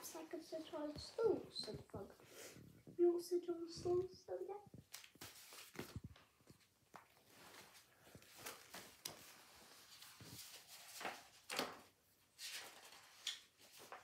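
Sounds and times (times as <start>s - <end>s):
book pages rustling: 3.8s - 14.0s.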